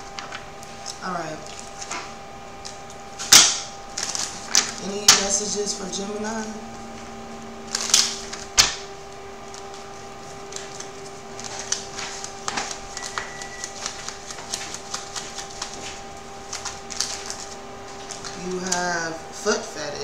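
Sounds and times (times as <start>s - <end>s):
steady hum: 0.0s - 20.0s
cards being shuffled: 7.7s - 8.8s, 9.5s - 19.0s.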